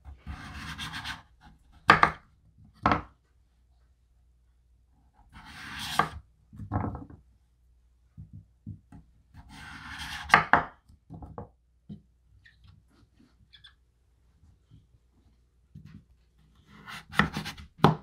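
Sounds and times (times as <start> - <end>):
knife slicing squash: 16.6 - 18.0.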